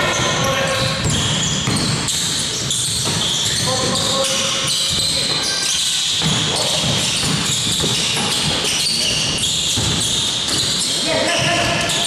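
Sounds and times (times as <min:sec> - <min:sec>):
basketball bouncing on floor: 0:00.0 - 0:04.0, 0:06.1 - 0:12.0
indoor hall noise: 0:00.0 - 0:12.0
voices: 0:10.8 - 0:12.0.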